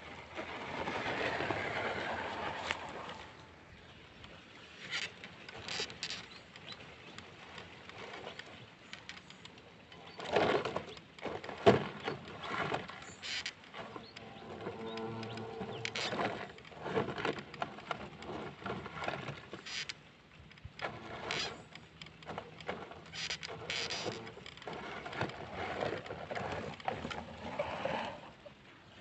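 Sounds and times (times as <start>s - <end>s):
faint motor and gear hum: 0.0s - 29.0s.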